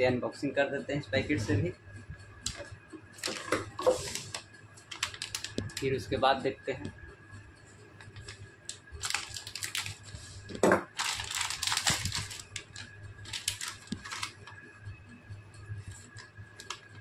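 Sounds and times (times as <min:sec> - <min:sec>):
plastic packet crinkling and tearing: 0:04.0 - 0:05.8, 0:09.0 - 0:10.0, 0:11.0 - 0:14.4.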